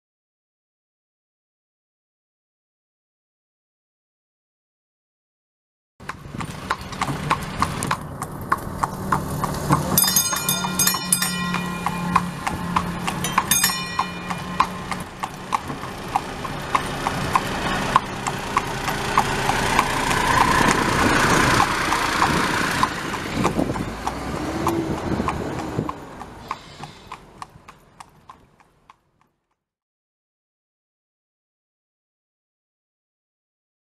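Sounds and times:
hooves clip-clopping: 0:06.0 - 0:29.6
rush of noise: 0:12.0 - 0:26.8.

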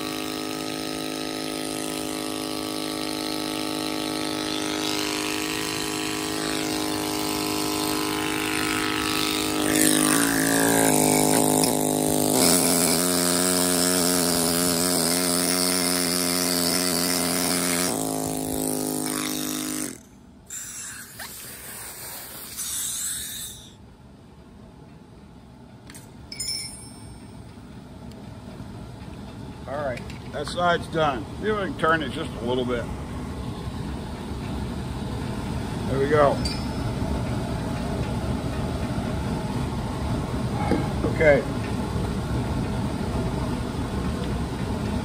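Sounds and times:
pneumatic hammer buzzing: 0:00.0 - 0:23.8.

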